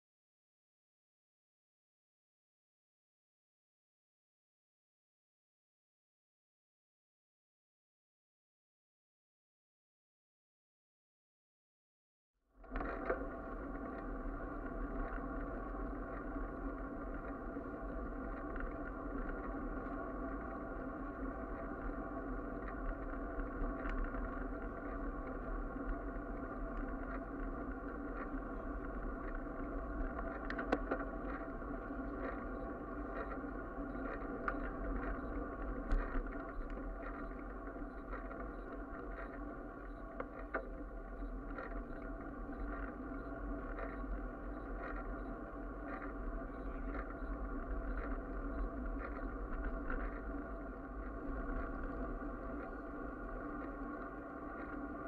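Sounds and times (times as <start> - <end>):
bicycle rattles over bumps: 12.6 - 55.0
bicycle rolling on asphalt: 12.6 - 55.0.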